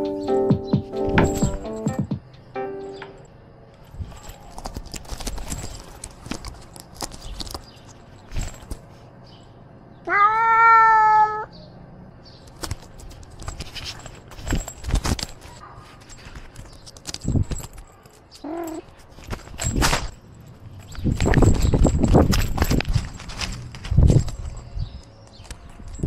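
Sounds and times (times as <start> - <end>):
cat meowing: 10.0 - 11.5.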